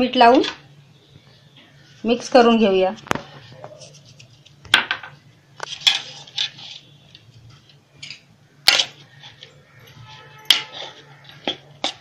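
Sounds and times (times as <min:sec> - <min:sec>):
rustling scrapes of mixing: 0:05.6 - 0:07.8, 0:08.7 - 0:12.0.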